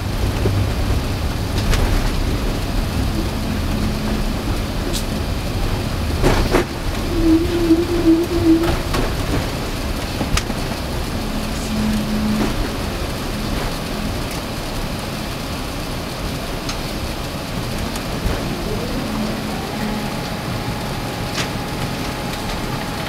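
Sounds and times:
airplane cabin rushing noise: 0:00.0 - 0:23.0
faint tone: 0:07.0 - 0:09.0.

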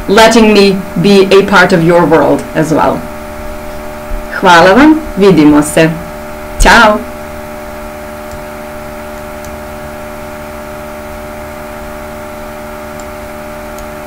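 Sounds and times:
electrical buzzing hum: 0:00.0 - 0:14.0.

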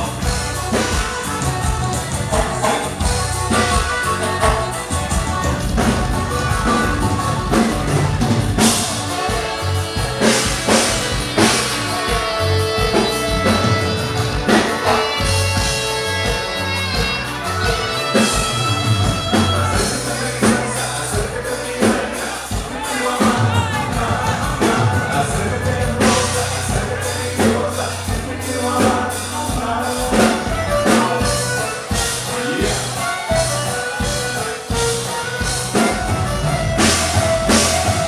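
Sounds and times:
bass: 0:00.0 - 0:38.0
button accordion: 0:00.0 - 0:38.0
drum kit: 0:00.0 - 0:38.0
person singing: 0:08.6 - 0:38.0.

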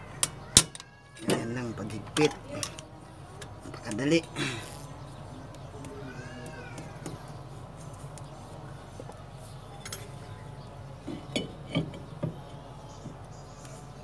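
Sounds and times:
metal clinks and knocks: 0:09.8 - 0:10.2, 0:11.0 - 0:13.2.

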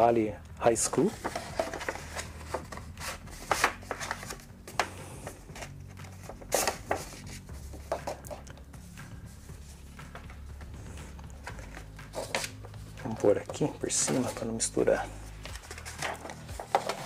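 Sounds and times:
paper rustling and crinkling: 0:01.0 - 0:08.4, 0:11.4 - 0:14.8, 0:15.4 - 0:17.0.

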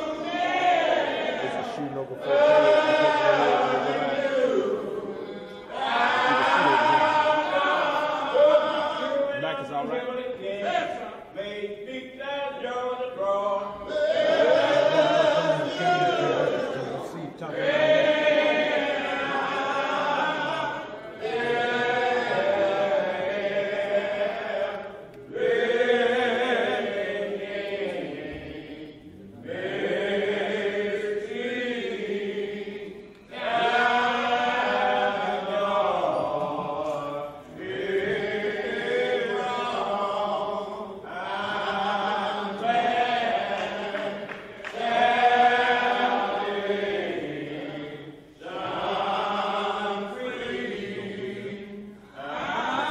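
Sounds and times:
congregation singing a hymn: 0:00.0 - 0:52.9.

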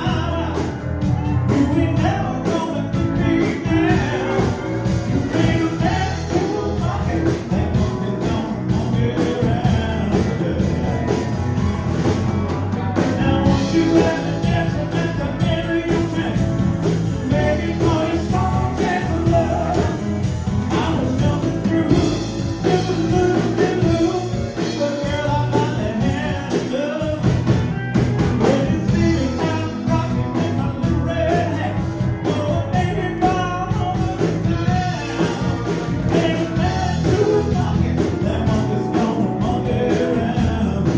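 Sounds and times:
lead singer singing: 0:00.0 - 0:40.9
rock band playing: 0:00.0 - 0:40.9.

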